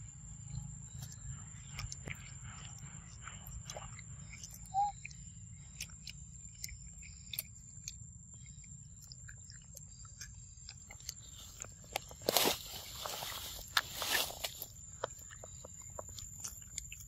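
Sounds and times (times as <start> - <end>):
monkey chewing fruit: 0.0 - 17.0
rustle of dry leaf litter: 12.2 - 14.7.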